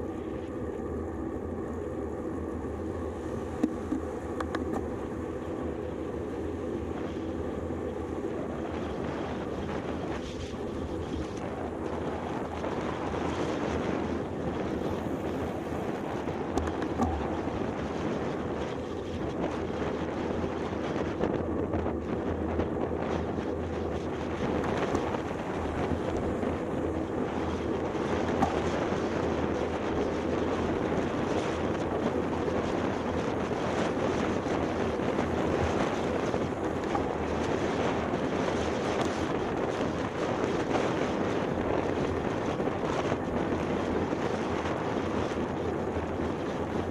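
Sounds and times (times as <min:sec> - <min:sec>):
low rumble: 0:00.0 - 0:19.8
road rumble: 0:00.0 - 0:46.9
wind buffeting microphone: 0:00.0 - 0:46.9.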